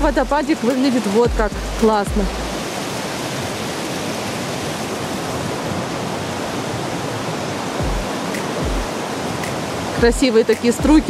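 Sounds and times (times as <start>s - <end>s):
waterfall rushing over rocks: 0.0s - 11.0s
low thumps: 1.3s - 2.6s, 7.8s - 10.2s.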